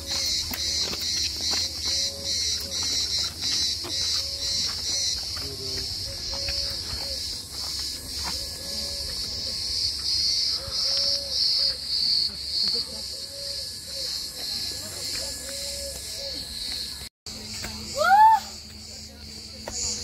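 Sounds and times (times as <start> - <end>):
footsteps on stone and gravel: 0.0 - 10.2, 14.0 - 18.0, 18.6 - 20.0
cicadas buzzing: 0.0 - 20.0.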